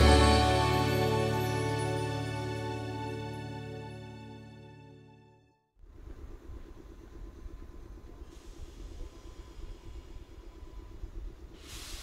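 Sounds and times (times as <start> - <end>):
train hiss: 8.2 - 12.0.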